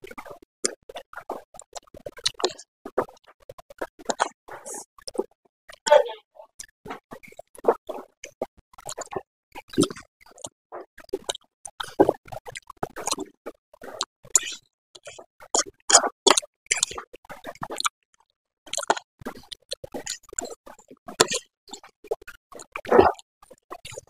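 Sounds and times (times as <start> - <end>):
wet chewing smacks: 1.6 - 3.1, 3.9 - 5.3, 17.6 - 17.9.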